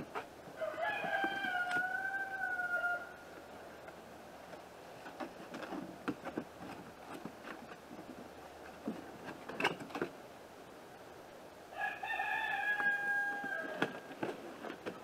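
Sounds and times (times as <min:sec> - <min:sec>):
rooster crowing: 0:00.6 - 0:03.2, 0:11.7 - 0:14.1
cardboard box rustling and tapping: 0:05.0 - 0:10.2.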